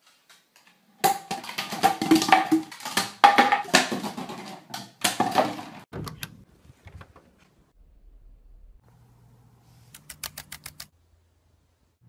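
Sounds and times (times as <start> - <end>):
plastic bottles clattering on wooden floor: 0.2 - 5.9.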